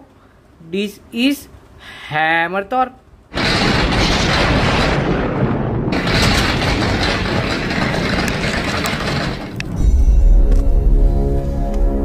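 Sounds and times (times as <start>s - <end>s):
loud rumbling crackling noise: 3.3s - 11.1s.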